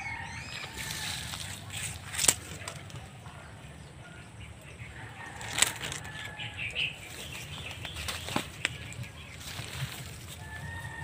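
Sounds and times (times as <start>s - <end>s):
leaves and twigs rustling: 0.0s - 3.4s, 4.9s - 11.0s
twig cracking: 0.7s - 3.1s, 5.4s - 6.4s.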